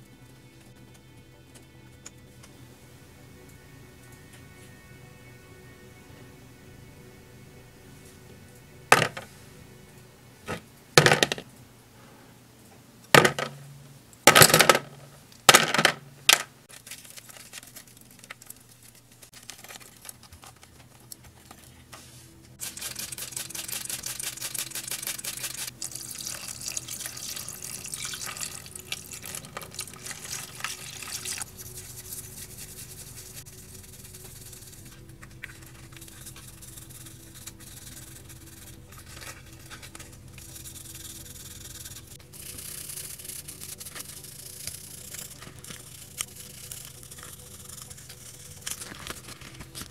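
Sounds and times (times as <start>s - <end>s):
brush scrubbing in water: 22.6s - 39.9s
water running into basin: 25.0s - 31.4s.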